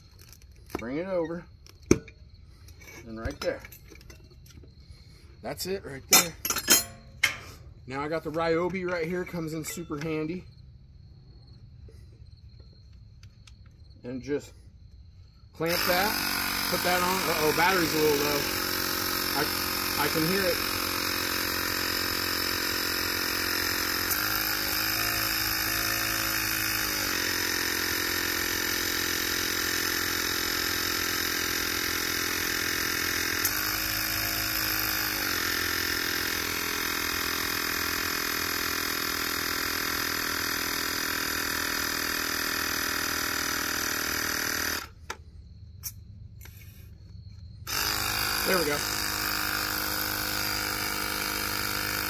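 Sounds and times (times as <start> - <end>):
tyre inflator pumping: 15.5 - 45.2, 45.8 - 52.0.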